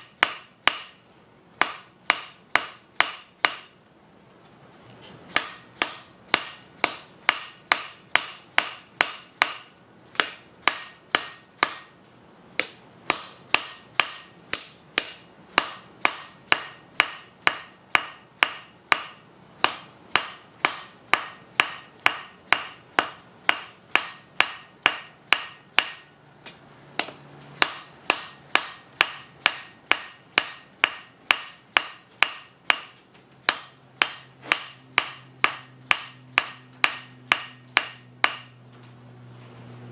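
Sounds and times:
hammer ringing on steel anvil: 12.6s - 26.1s, 27.0s - 32.9s, 33.5s - 38.6s.

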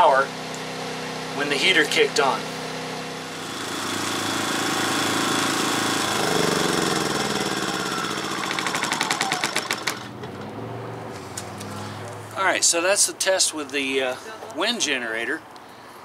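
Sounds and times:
generator engine chugging: 1.5s - 10.2s.

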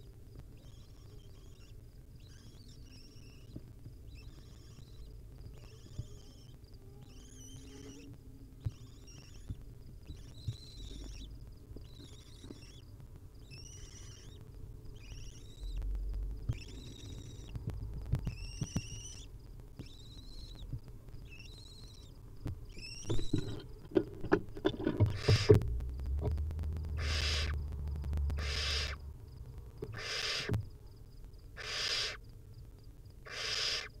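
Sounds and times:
owl nestling rasping hiss: 0.4s - 24.0s, 24.8s - 25.6s, 26.4s - 30.8s, 31.4s - 32.4s, 33.2s - 34.0s
owl twittering calls: 0.5s - 17.6s, 18.2s - 23.6s, 25.0s - 25.6s, 26.8s - 27.6s, 28.2s - 29.1s, 29.8s - 30.6s, 31.5s - 32.2s, 33.2s - 34.0s
scratches and knocks in nest: 22.5s - 26.4s.

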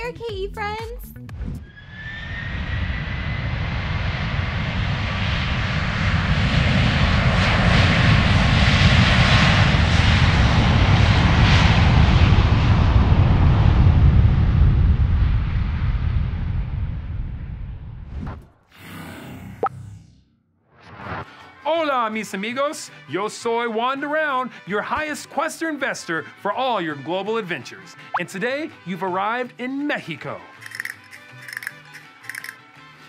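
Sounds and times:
jet roar: 1.6s - 17.2s
jet engine whine: 1.6s - 18.0s.

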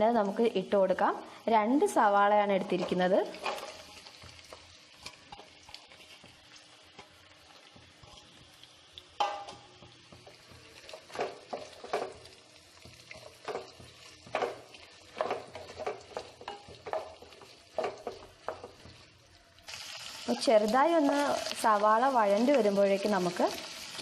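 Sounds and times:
onions sizzling in oil: 0.0s - 24.0s
spatula scraping a pan: 2.8s - 8.4s, 9.2s - 19.1s.

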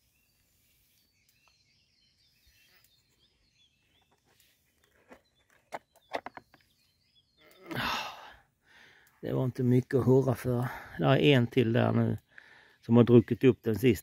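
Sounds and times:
faint birds chirping: 0.0s - 14.0s.

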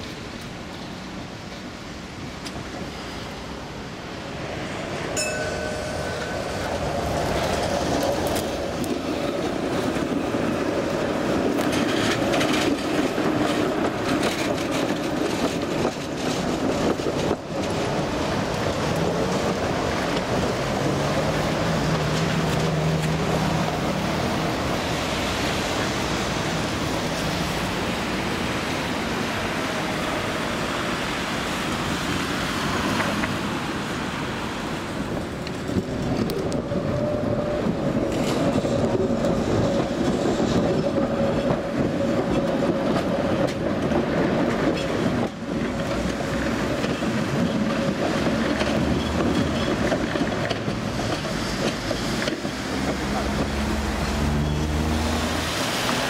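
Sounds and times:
tram wheels rumbling on rails: 0.0s - 56.0s
wheels clicking over rail joints: 5.1s - 28.1s, 34.9s - 54.9s.

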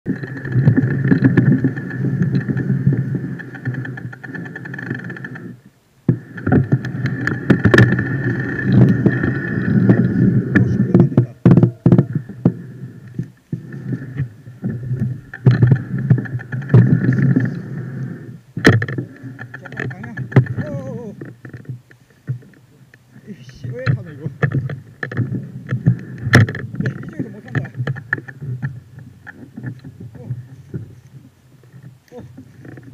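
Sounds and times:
bike tyres rumbling over dirt: 0.1s - 21.9s, 23.2s - 32.9s
bike rattling and knocking: 18.6s - 21.9s, 26.3s - 28.7s.

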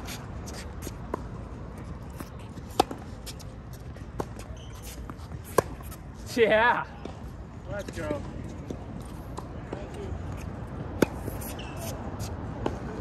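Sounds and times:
tennis racket hitting ball: 10.9s - 12.0s.

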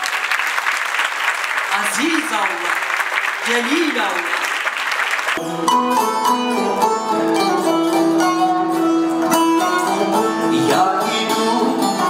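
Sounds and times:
plucked string accompaniment: 5.4s - 12.0s
man singing: 9.8s - 12.0s.

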